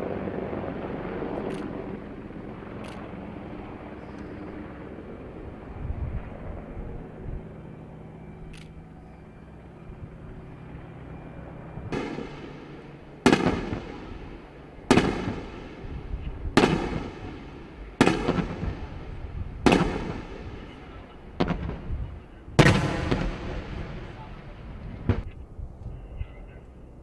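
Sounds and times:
helicopter hum: 0:00.0 - 0:27.0
explosive bangs with echo: 0:11.9 - 0:22.0, 0:22.6 - 0:25.3.

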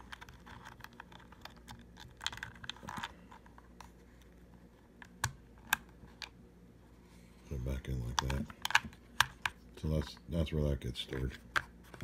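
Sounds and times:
plastic clicks and rattles: 0:00.0 - 0:03.5.

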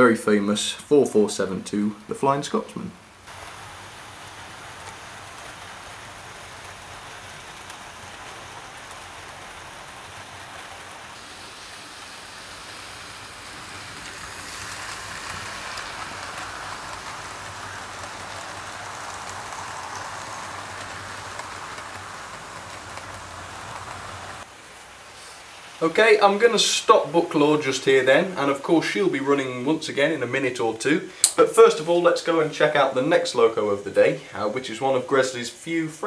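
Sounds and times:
model train running on track: 0:03.3 - 0:24.4.

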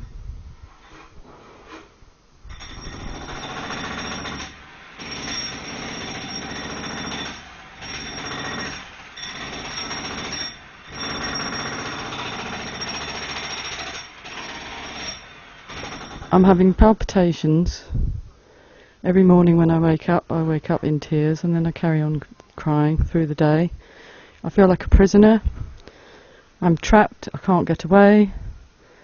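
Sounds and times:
jackhammer hammering: 0:02.5 - 0:16.8.

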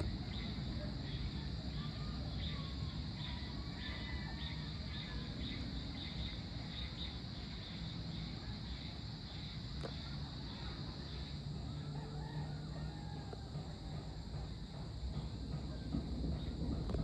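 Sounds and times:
faint bird chirps: 0:00.0 - 0:13.0
high-pitched insect chorus: 0:00.0 - 0:17.0
low background rumble: 0:00.0 - 0:17.0.

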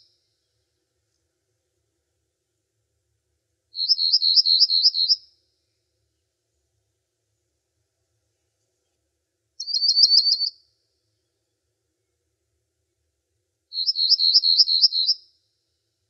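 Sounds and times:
songbird trilling: 0:03.8 - 0:05.2, 0:09.6 - 0:10.5, 0:13.7 - 0:15.2.

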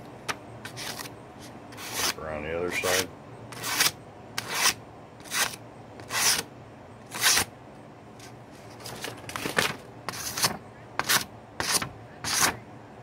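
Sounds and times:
blade slicing paper: 0:00.7 - 0:01.1, 0:01.8 - 0:06.5, 0:07.1 - 0:07.5, 0:10.1 - 0:12.6.

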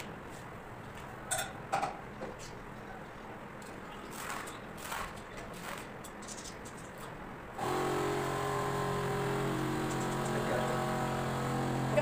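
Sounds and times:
steady engine-like hum: 0:06.7 - 0:12.0.

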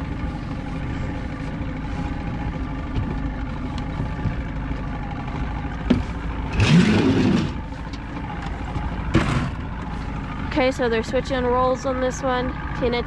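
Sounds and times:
boat engine idling: 0:00.0 - 0:13.0
rough burst of engine noise: 0:05.8 - 0:08.4, 0:09.0 - 0:10.6.

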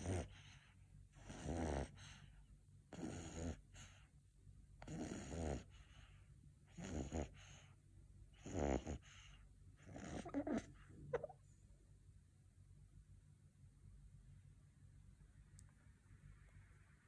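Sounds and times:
puppy snoring: 0:00.0 - 0:04.1, 0:04.8 - 0:11.4.

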